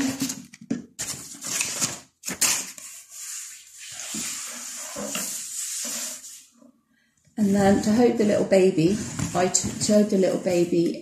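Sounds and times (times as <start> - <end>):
packaging rustling: 0.1 - 3.1.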